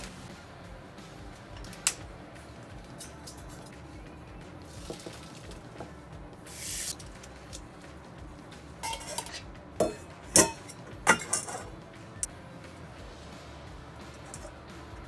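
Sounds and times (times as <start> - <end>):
metal bowl and colander clattering: 4.7 - 5.8, 8.8 - 11.7
short hiss: 6.5 - 7.0.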